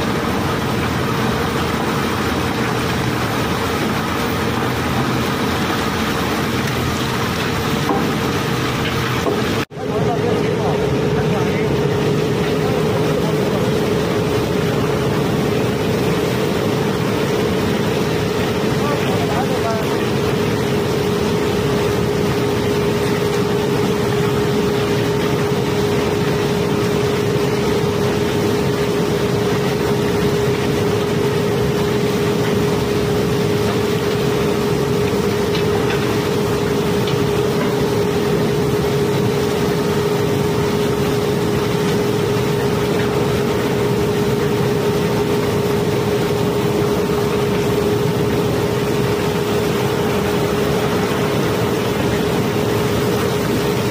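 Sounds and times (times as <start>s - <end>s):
steady machinery hum: 0.0s - 53.9s.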